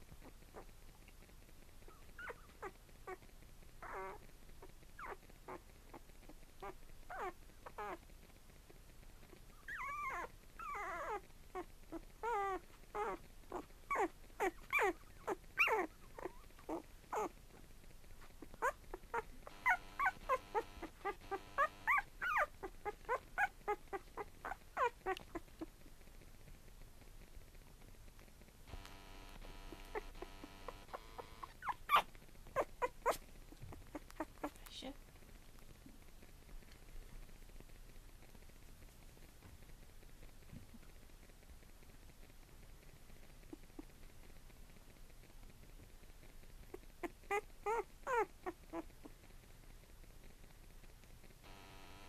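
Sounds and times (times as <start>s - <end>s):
puppies squeaking and whimpering: 1.9s - 3.2s, 3.8s - 4.2s, 6.6s - 8.0s, 9.7s - 17.3s, 18.6s - 25.7s, 29.0s - 34.6s, 47.0s - 48.8s.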